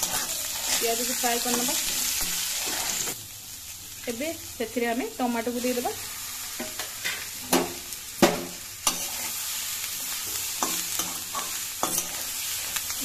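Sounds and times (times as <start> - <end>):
food sizzling in hot oil: 0.0 - 13.0.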